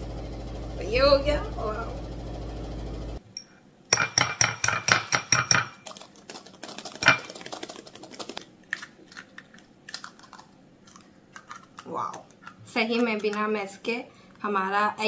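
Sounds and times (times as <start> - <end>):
whisk tapping glass bowl: 3.9 - 8.4.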